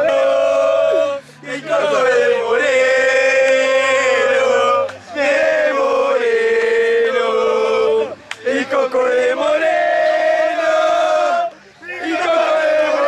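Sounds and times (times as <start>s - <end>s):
men chanting in a group: 0.0s - 13.0s.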